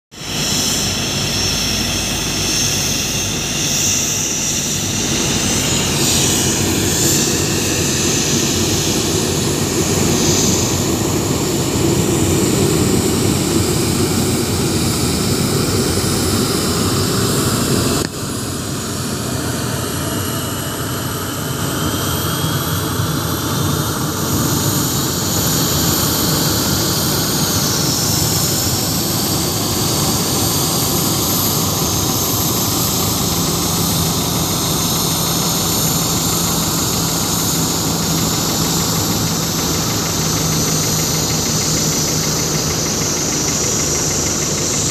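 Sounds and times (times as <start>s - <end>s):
jet engines rushing and whining: 0.1s - 44.9s
faint rising whine: 25.4s - 44.9s.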